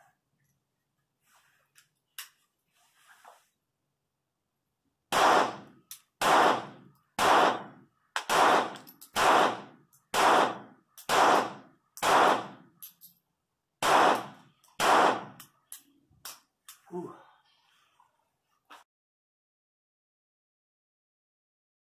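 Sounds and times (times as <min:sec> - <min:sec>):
pistol shots with echo: 0:05.1 - 0:12.8, 0:13.8 - 0:15.4.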